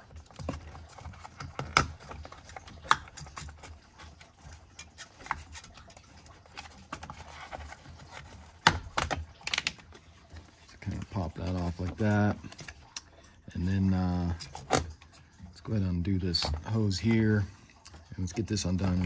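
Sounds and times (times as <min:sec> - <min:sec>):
plastic clicks and rattles: 0:00.0 - 0:10.0.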